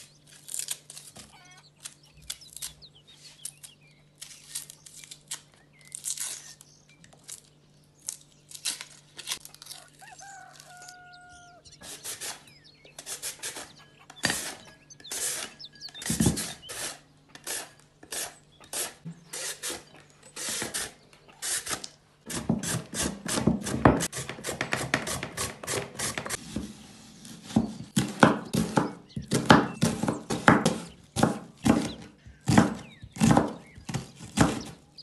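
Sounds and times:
vegetable being scraped: 13.0s - 23.8s.

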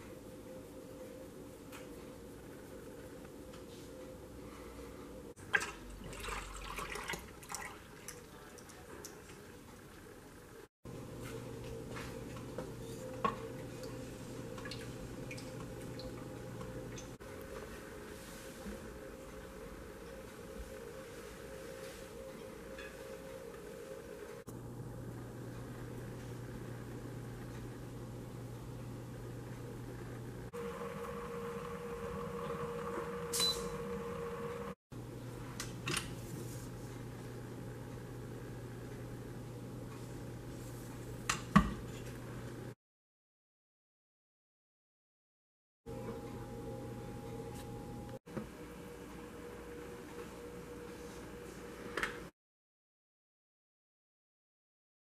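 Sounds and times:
steady low hum: 10.1s - 42.8s, 45.9s - 52.1s
short high beep: 33.3s - 33.8s.

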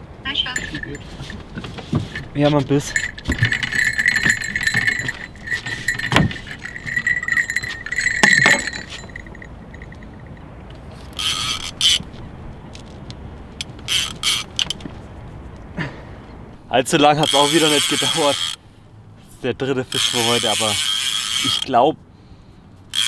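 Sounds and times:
rustling handling noise: 0.6s - 15.6s
fishing reel ratchet buzzing: 3.0s - 10.1s, 11.1s - 12.0s, 13.9s - 14.7s, 17.2s - 18.6s, 19.9s - 21.7s.

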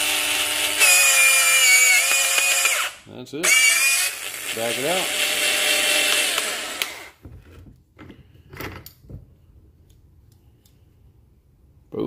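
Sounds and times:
cordless tool motor running: 0.0s - 7.2s.

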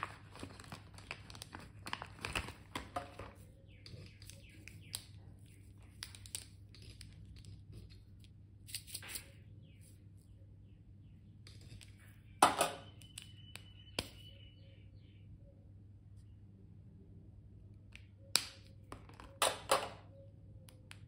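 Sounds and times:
plastic packaging crinkling: 0.0s - 5.0s
low steady hum: 0.0s - 21.0s.

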